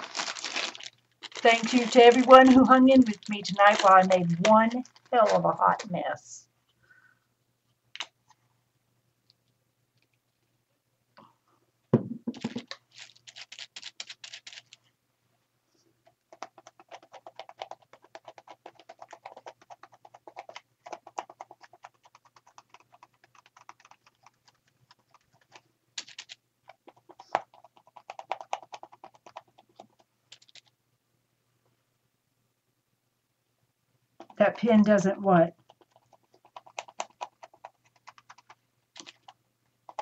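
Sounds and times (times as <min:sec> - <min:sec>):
thump: 0:12.0 - 0:12.6.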